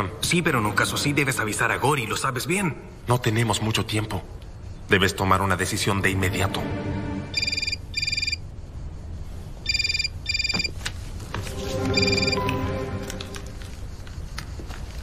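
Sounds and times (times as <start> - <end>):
electronic telephone ringing: 7.4 - 8.4, 9.7 - 10.7, 11.9 - 12.6.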